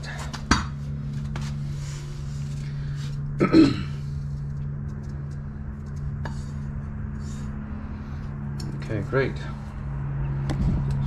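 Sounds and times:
steady low hum: 0:00.0 - 0:11.0
person clearing throat: 0:03.4 - 0:04.1.

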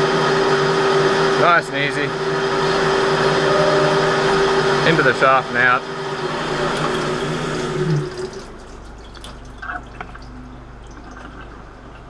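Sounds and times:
metal lathe running: 0:00.0 - 0:08.8
coolant trickling and dripping: 0:06.7 - 0:12.0.

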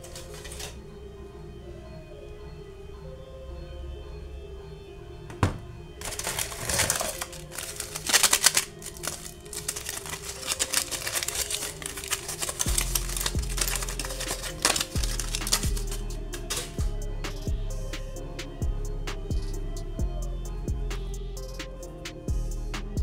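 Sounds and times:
aluminium foil crinkling: 0:00.0 - 0:00.8, 0:06.0 - 0:16.8
background music: 0:00.0 - 0:23.0
low bass line: 0:15.0 - 0:23.0.

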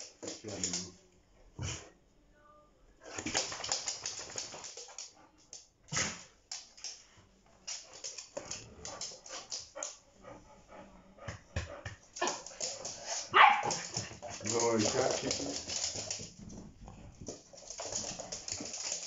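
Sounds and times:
puppies scuffling on hard floor: 0:03.1 - 0:05.2, 0:11.6 - 0:19.0.

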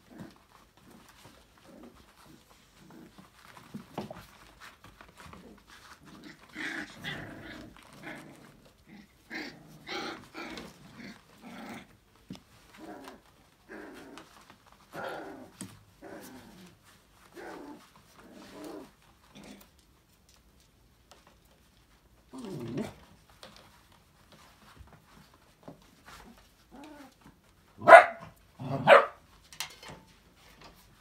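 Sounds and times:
puppies growling playfully: 0:00.0 - 0:19.8, 0:22.2 - 0:23.6, 0:28.5 - 0:28.9.

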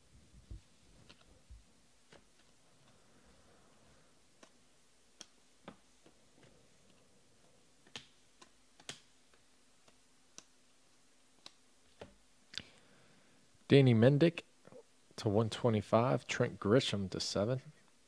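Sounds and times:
trading cards clicking and snapping: 0:07.8 - 0:10.5.

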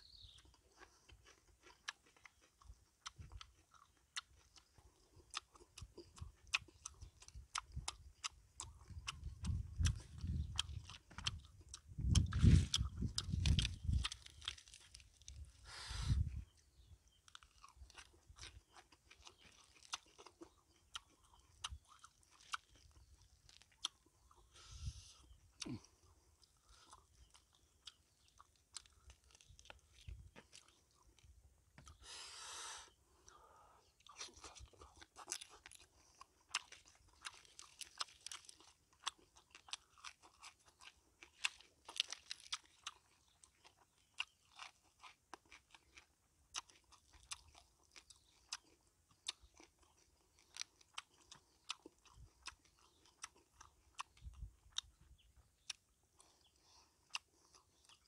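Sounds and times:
person chewing and crunching: 0:00.1 - 0:32.2, 0:33.1 - 0:58.0.

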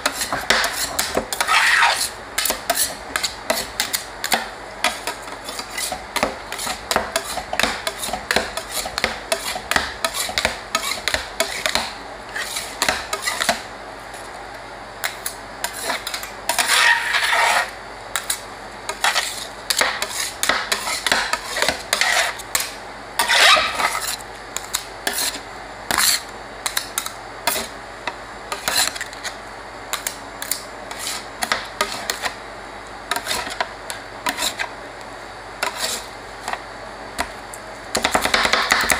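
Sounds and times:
metal spatulas scraping steel pan: 0:00.0 - 0:13.6, 0:15.6 - 0:24.2, 0:25.0 - 0:27.7, 0:28.6 - 0:29.0, 0:33.1 - 0:33.6, 0:34.3 - 0:34.7, 0:35.6 - 0:36.1.

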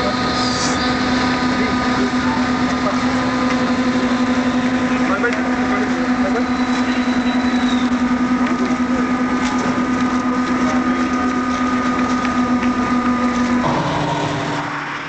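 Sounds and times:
ship engines droning: 0:00.0 - 0:15.0.

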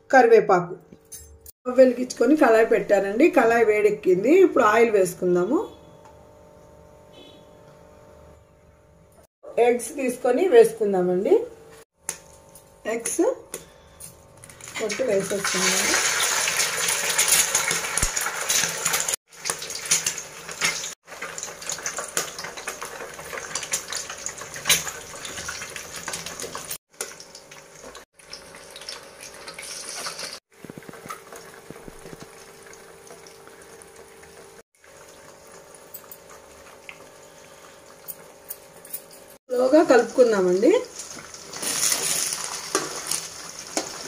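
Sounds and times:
eggs sizzling in hot oil: 0:14.7 - 0:38.7, 0:39.5 - 0:44.0.

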